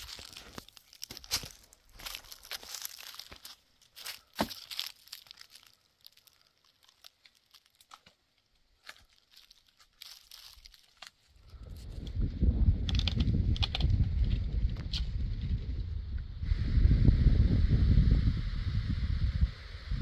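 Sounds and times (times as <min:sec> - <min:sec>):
dry twigs snapping: 0:00.0 - 0:12.2, 0:12.8 - 0:15.2
low rumble: 0:11.5 - 0:20.0.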